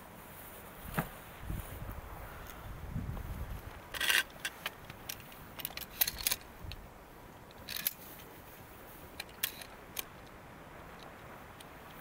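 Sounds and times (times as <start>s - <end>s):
steady low hiss: 0.0s - 12.0s
equipment clicks and rattles: 3.9s - 6.8s, 7.5s - 8.2s, 9.2s - 10.3s.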